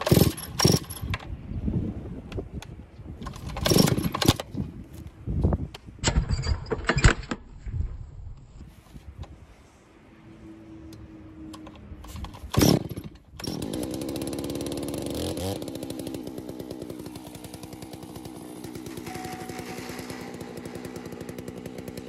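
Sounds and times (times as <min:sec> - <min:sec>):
chainsaw starting and idling: 0:00.0 - 0:01.1, 0:03.2 - 0:04.5, 0:12.1 - 0:22.0.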